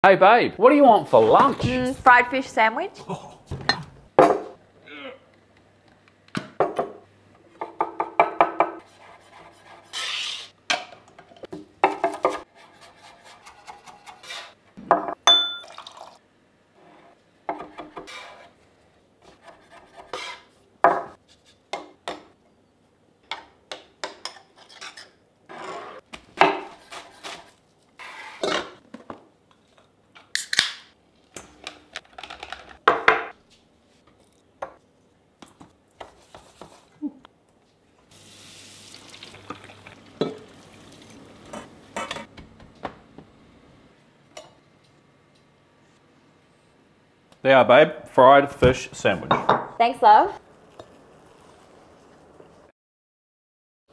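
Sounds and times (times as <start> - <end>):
metal bowls and utensils clinking: 39.1 - 42.3.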